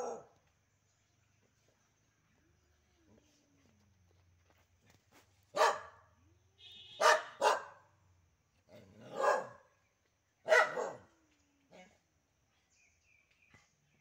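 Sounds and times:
dog barking: 0.0s - 0.3s, 5.5s - 6.1s, 7.0s - 7.9s, 9.0s - 9.7s, 10.4s - 11.1s.

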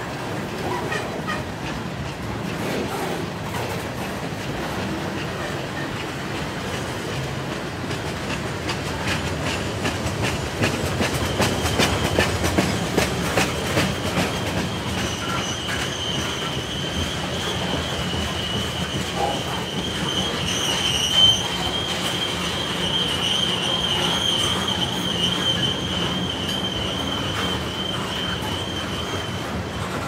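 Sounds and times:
freight train rumbling: 0.0s - 30.0s
wheels clacking over rail joints: 0.0s - 30.0s
high wheel squeal: 13.7s - 30.0s.

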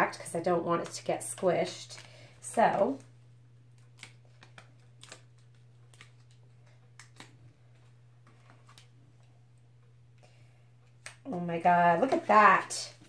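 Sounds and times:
low hum: 0.0s - 13.0s
fingers handling paper: 3.7s - 9.3s.

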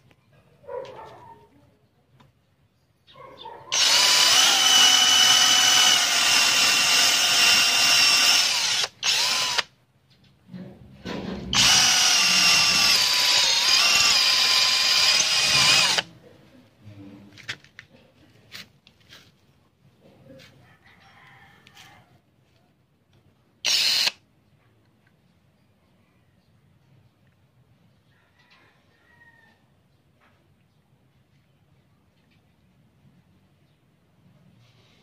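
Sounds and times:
cordless drill boring into stone: 3.7s - 9.7s, 11.5s - 16.1s, 23.6s - 24.2s.

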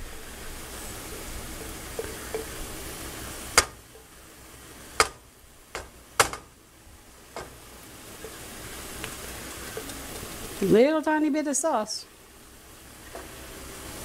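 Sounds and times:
faint sizzling: 0.0s - 14.0s
utensil clicking on frying pan: 5.8s - 6.5s.

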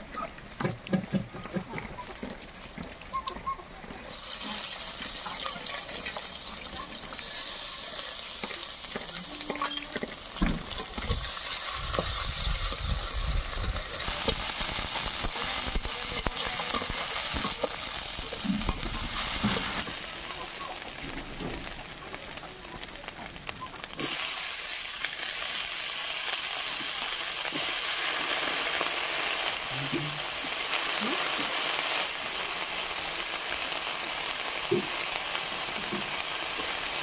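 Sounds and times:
fish sizzling in hot oil: 0.0s - 37.0s.

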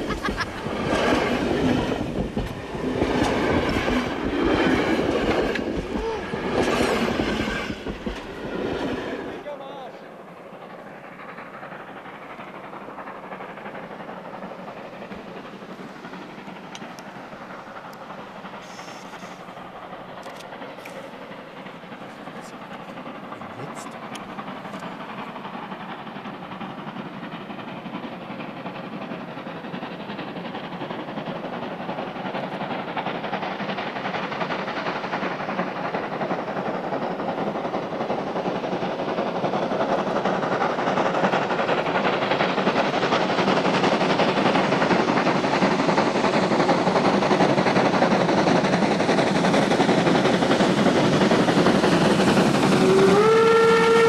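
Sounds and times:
steam locomotive exhaust: 0.0s - 54.0s
steam whistle: 52.6s - 54.0s.

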